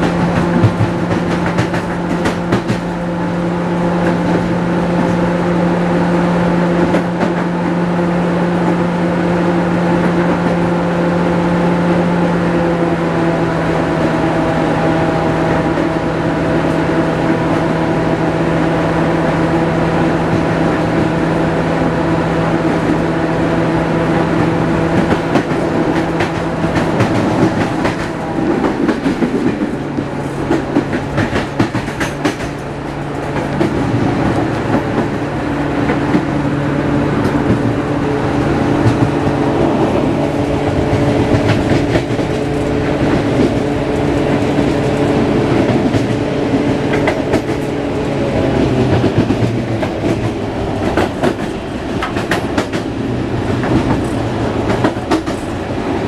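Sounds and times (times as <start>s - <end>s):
diesel locomotive engine under load: 0.0s - 56.0s
wheels clicking over rail joints: 24.4s - 35.2s.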